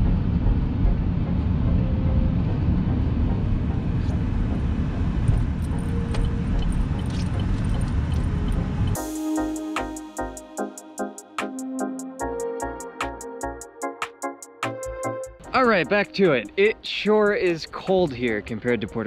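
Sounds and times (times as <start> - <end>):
car interior road rumble: 0.0 - 9.0.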